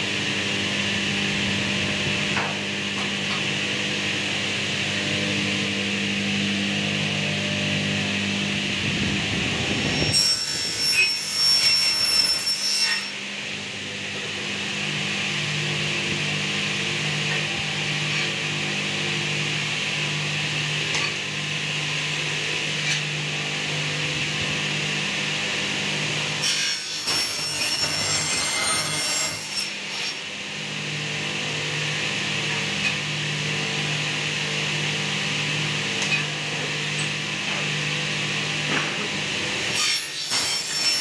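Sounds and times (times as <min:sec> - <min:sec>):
saw blade cutting metal: 0:09.8 - 0:13.3, 0:22.2 - 0:24.1, 0:24.7 - 0:30.3, 0:36.0 - 0:37.8, 0:38.7 - 0:41.0.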